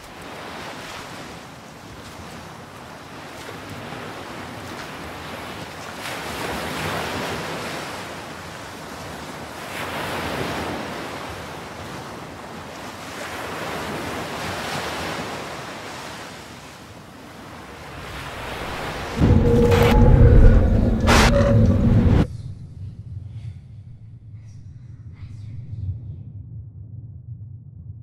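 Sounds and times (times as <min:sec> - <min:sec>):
waves washing onto shore: 0:00.0 - 0:19.1
wind on microphone: 0:17.5 - 0:23.3.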